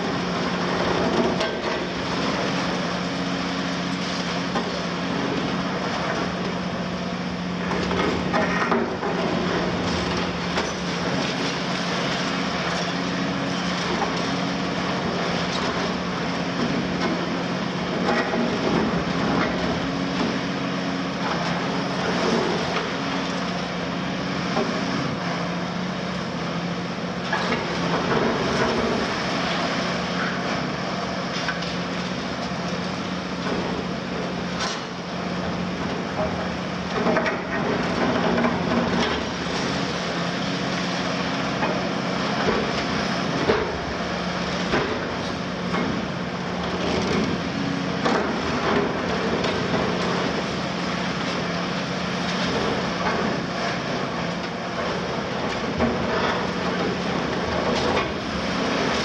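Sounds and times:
diesel engine running under load: 0:00.0 - 0:59.0.

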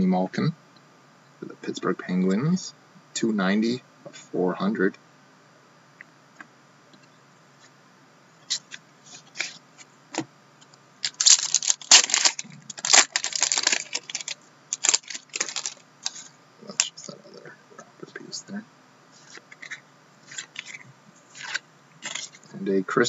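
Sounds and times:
wrapper tearing and crinkling: 0:11.0 - 0:16.3, 0:21.4 - 0:22.4
cards sliding out: 0:19.2 - 0:22.4.

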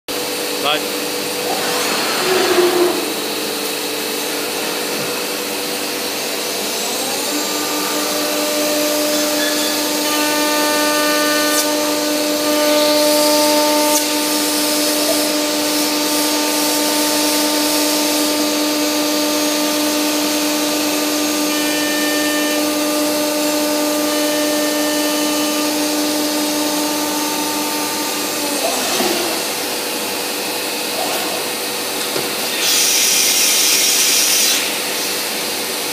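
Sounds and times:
cnc machine rushing noise: 0:00.1 - 0:35.9
spindle whine: 0:01.2 - 0:05.8.

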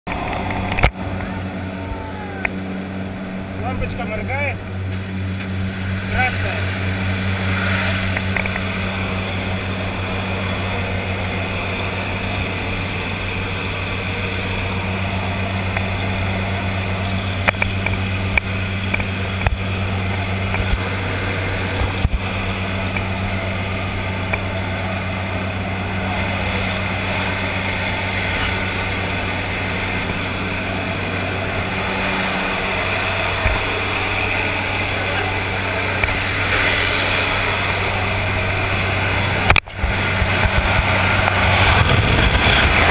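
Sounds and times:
plane engines droning: 0:00.1 - 0:42.9.

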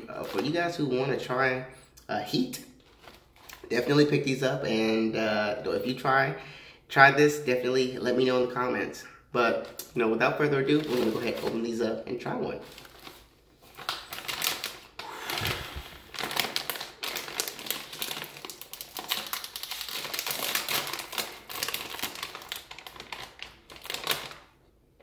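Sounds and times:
chip bag crinkling: 0:10.5 - 0:24.6.

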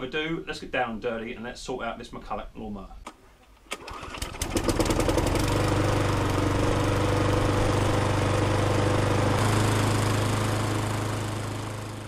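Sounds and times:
lawnmower engine running: 0:03.8 - 0:12.0.

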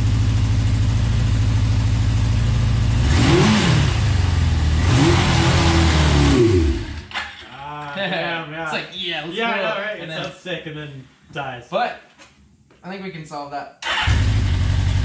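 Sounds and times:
motorcycle engine idling and revving: 0:00.0 - 0:07.4, 0:13.9 - 0:15.0.

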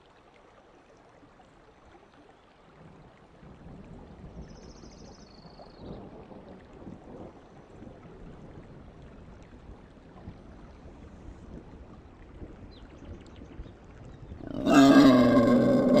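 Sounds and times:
faint rain: 0:00.0 - 0:16.0
deep wild boar call: 0:14.4 - 0:16.0.

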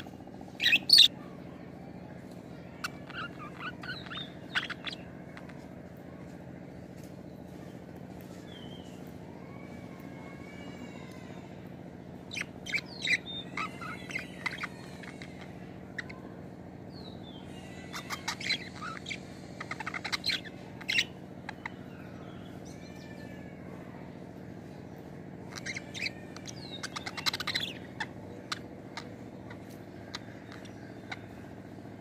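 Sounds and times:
budgerigars chirping and warbling: 0:00.0 - 0:01.2, 0:02.5 - 0:05.8, 0:12.2 - 0:23.4, 0:25.4 - 0:32.0
steady low hum: 0:00.0 - 0:32.0.

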